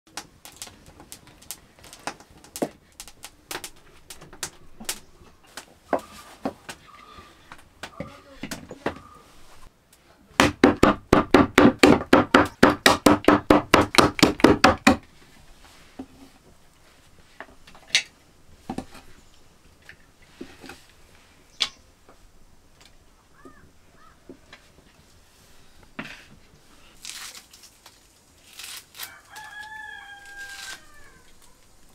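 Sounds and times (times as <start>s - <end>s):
knife chopping meat and bone: 10.4s - 15.0s.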